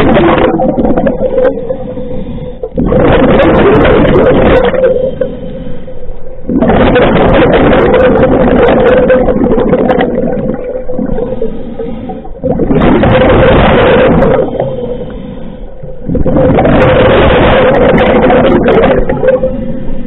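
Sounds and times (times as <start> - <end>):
exhaled bubbles rushing: 0.0 - 5.4, 6.3 - 20.0
steady hum: 0.0 - 20.0
regulator inhales: 1.8 - 2.8, 5.0 - 6.2, 11.2 - 12.4, 14.7 - 16.1.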